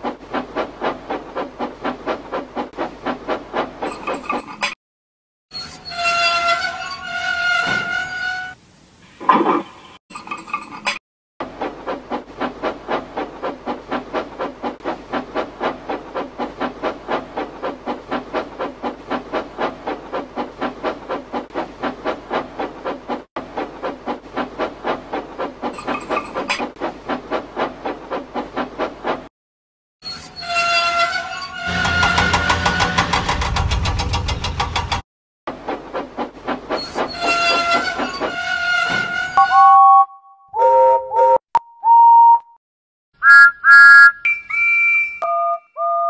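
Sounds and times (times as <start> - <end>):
steam locomotive chuffing: 11.4 - 29.2, 31.7 - 39.3.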